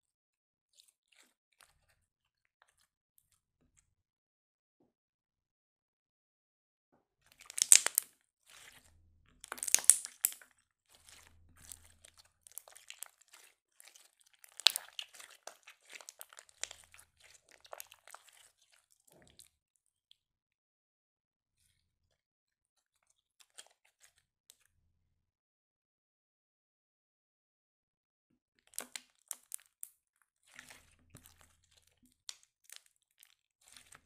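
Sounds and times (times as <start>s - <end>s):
slime crackling and popping: 7.3s - 8.8s, 9.4s - 10.4s, 11.0s - 18.6s, 28.7s - 29.9s, 30.6s - 34.0s.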